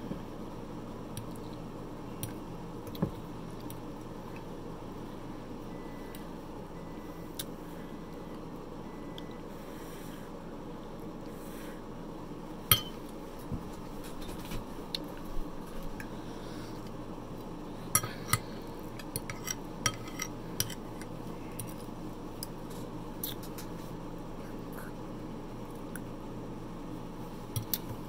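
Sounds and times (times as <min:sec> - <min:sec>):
fork clinking on ceramic plate: 0:12.7 - 0:13.0.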